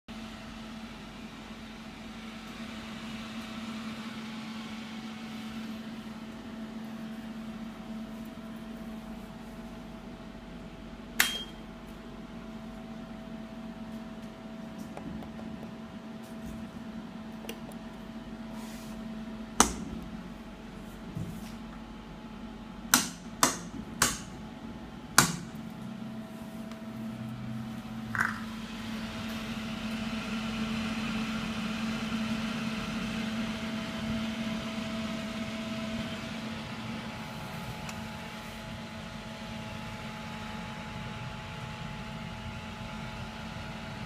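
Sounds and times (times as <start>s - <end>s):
steady machine hum: 0.1s - 44.0s
power switch clicks: 11.2s - 11.6s.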